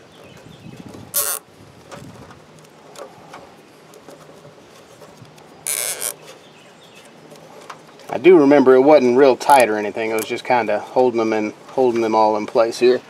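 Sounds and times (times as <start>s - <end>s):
wires clicking and rustling: 0.0s - 8.3s, 9.4s - 10.6s
zip tie ratcheting: 1.0s - 3.1s, 3.9s - 6.4s.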